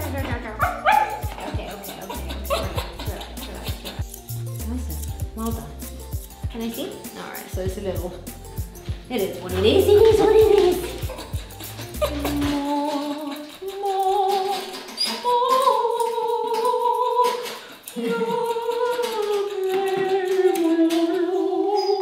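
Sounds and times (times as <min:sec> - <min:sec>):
woman singing long notes: 0:12.0 - 0:22.0.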